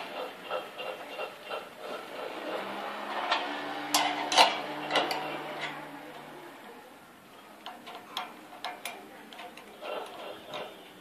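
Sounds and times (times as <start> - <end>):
spanner ticking on bolt: 7.6 - 10.7.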